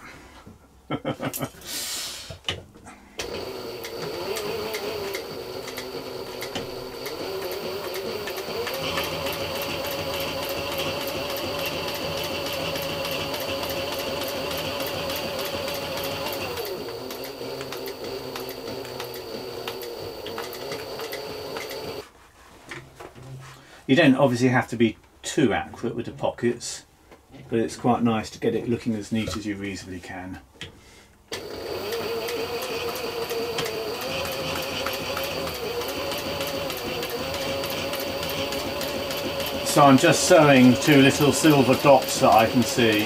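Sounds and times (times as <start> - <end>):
sewing machine stitching leather: 3.2 - 22.0, 31.3 - 43.0.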